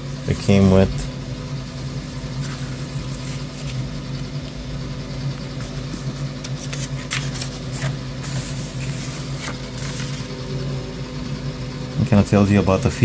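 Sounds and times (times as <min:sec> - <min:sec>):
steady low hum: 0:00.0 - 0:13.0
pages rustling: 0:01.9 - 0:04.6, 0:05.3 - 0:10.3
paper rustling and crinkling: 0:02.0 - 0:04.0, 0:05.6 - 0:10.3.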